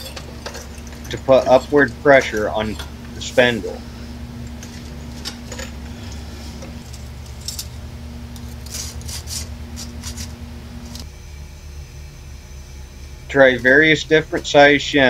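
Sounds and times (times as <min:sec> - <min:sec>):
metal shim clicking and scraping: 0:00.0 - 0:11.1
steady low hum: 0:00.0 - 0:15.0.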